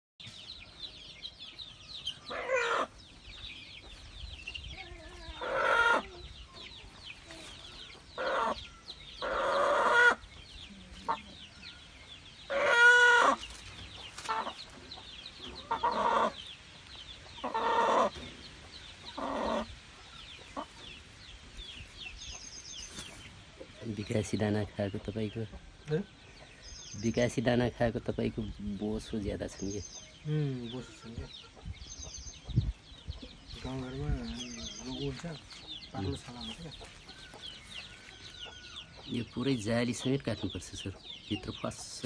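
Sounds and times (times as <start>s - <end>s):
young rooster squawking in distress: 2.3s - 2.9s, 4.9s - 6.2s, 8.2s - 8.6s, 9.2s - 10.2s, 12.5s - 13.4s, 17.4s - 18.2s.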